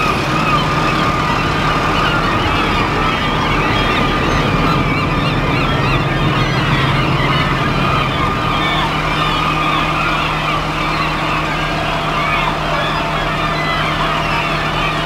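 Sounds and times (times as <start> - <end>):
diesel engine running: 0.0 - 15.0
gulls calling: 0.0 - 15.0
high whine: 0.0 - 15.0.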